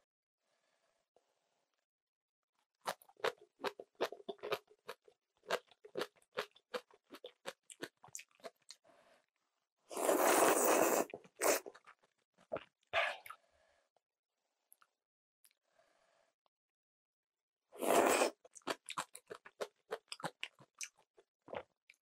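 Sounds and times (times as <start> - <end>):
crunchy chewing of cabbage: 2.9 - 8.6
loud slurp of noodles: 9.9 - 11.8, 17.8 - 18.4.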